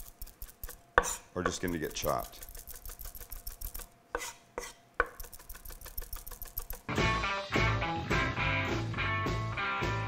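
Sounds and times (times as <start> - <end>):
knife chopping on wooden board: 0.6 - 3.0, 4.1 - 6.8
music: 6.9 - 10.0.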